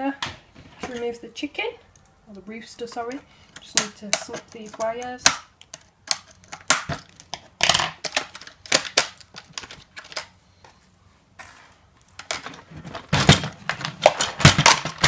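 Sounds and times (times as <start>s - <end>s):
plastic toy knocking and rattling: 3.6s - 10.2s, 12.2s - 15.0s.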